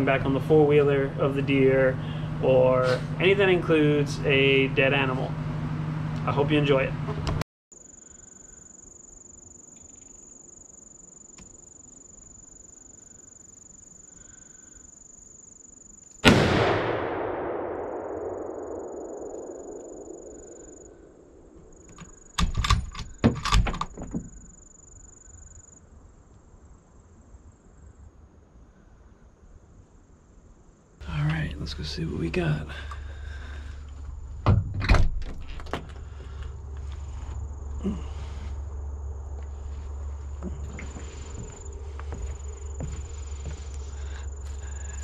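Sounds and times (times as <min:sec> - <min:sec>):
high-pitched insect drone: 0:07.8 - 0:16.2, 0:18.8 - 0:22.6, 0:36.0 - 0:45.0
gunshot echoing: 0:16.2 - 0:20.6
sharp clicks and knocks: 0:21.9 - 0:24.4.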